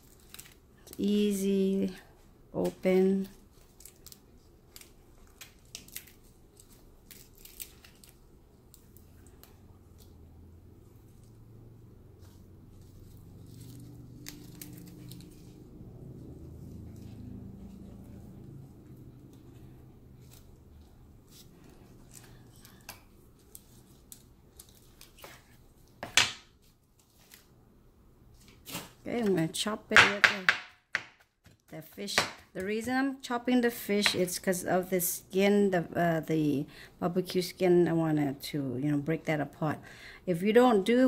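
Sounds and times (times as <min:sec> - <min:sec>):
charred skin crackling and tearing: 0:00.0 - 0:01.0, 0:03.3 - 0:10.2, 0:12.2 - 0:15.6, 0:20.2 - 0:26.0
low steady hum: 0:00.0 - 0:30.4.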